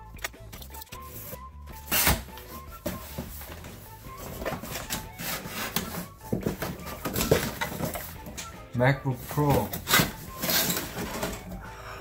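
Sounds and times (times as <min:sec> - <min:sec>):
background music: 0:00.0 - 0:12.0
cardboard box rubbing and knocking: 0:02.5 - 0:08.3.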